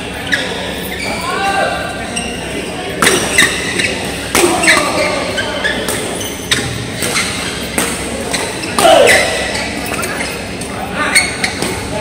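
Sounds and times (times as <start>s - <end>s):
rackets hitting shuttlecock: 3.0s - 5.1s, 5.8s - 10.1s.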